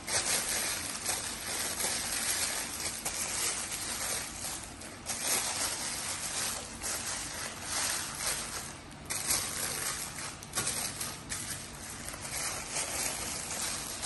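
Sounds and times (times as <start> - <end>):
packing wrap crinkling: 0.0 - 14.0.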